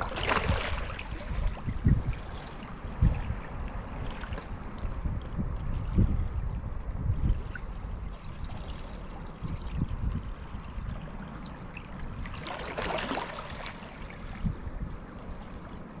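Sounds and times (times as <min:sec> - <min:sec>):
small waves lapping over rocks: 0:00.0 - 0:05.1, 0:08.1 - 0:14.5.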